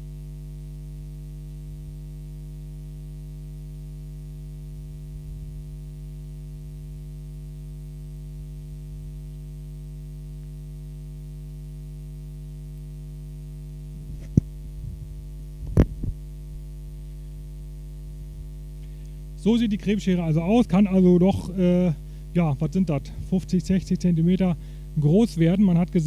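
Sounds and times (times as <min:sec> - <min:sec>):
electrical mains hum: 0:03.0 - 0:26.0
microphone handling knocks: 0:14.1 - 0:16.2.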